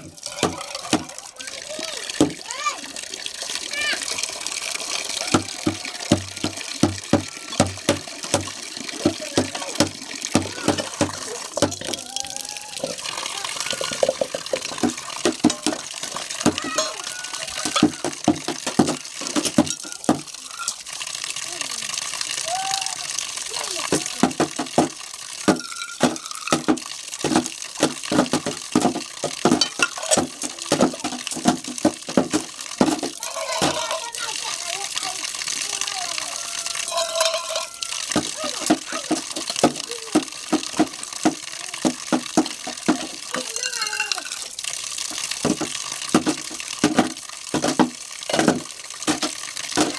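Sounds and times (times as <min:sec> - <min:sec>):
water pouring from tap: 0:00.0 - 0:49.9
steel dishes clattering: 0:12.8 - 0:17.0, 0:17.6 - 0:20.8, 0:25.4 - 0:27.4, 0:28.2 - 0:34.0, 0:36.8 - 0:40.9.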